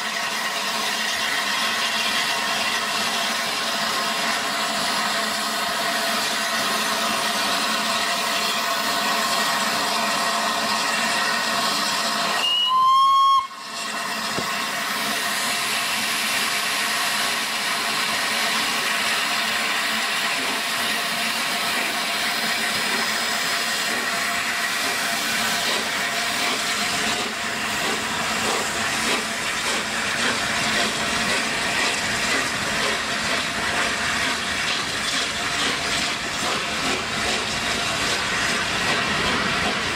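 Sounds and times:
steam train working: 0.0 - 39.9
steam whistle blast: 12.3 - 13.7
steam hissing: 13.6 - 39.9.

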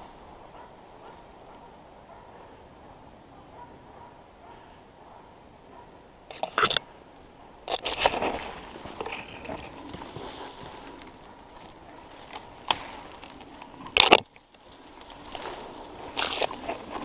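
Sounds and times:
brush rustling and scraping: 6.3 - 6.8, 7.7 - 17.0
twigs cracking: 7.7 - 17.0.

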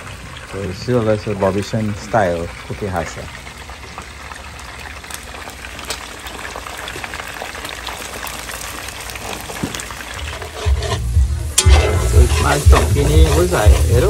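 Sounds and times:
fish frying in oil: 0.0 - 14.0
low rumble: 10.6 - 14.0.

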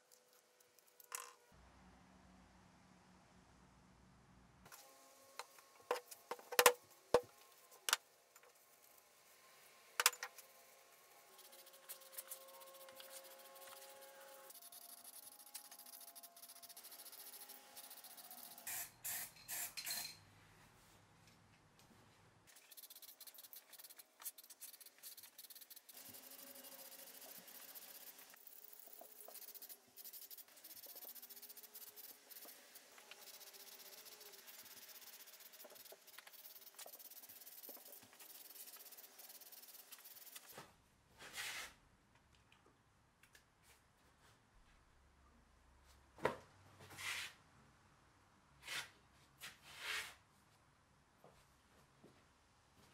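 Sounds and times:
spray paint can hissing: 11.3 - 19.7, 22.5 - 40.5.

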